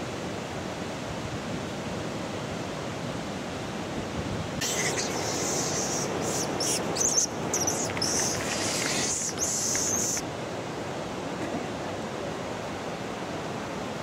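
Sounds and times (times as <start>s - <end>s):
mountain stream rushing: 0.0s - 14.0s
high thin chirping calls: 4.6s - 10.2s.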